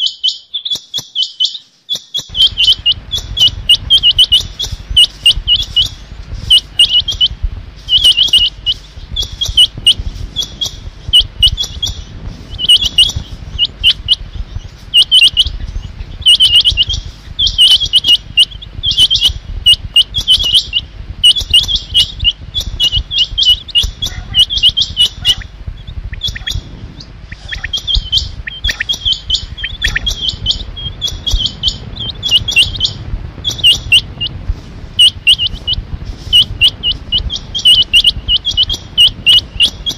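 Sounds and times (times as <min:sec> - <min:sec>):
quail calling: 0:00.0 - 0:39.9
low rumble: 0:02.3 - 0:39.9.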